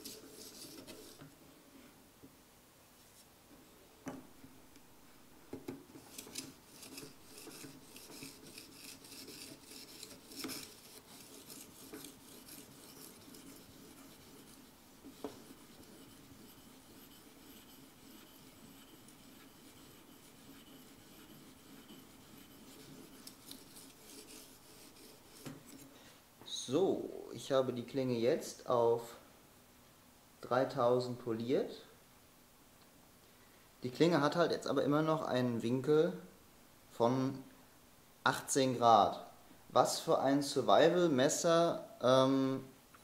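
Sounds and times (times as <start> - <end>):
abrasive rasping on knife blade: 6.0 - 25.8.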